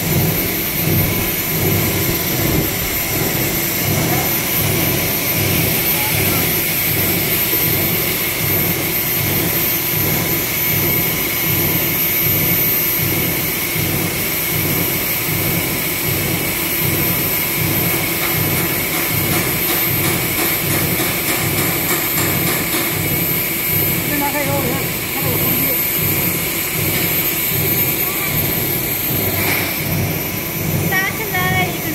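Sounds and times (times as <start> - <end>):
blower air rushing: 0.0 - 10.6, 20.3 - 31.9
machine high whine: 0.0 - 31.9
machine low throb: 0.0 - 31.9.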